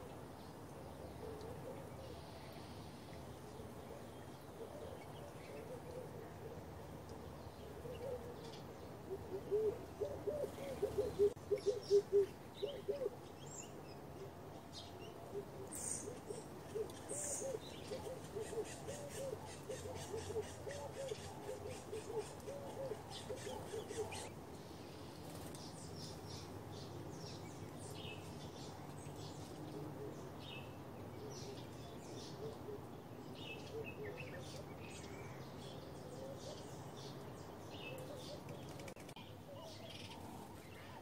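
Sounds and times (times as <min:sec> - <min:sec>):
small birds chirping: 0:00.0 - 0:41.0
dove cooing: 0:03.9 - 0:07.0, 0:07.6 - 0:13.2, 0:15.3 - 0:24.3.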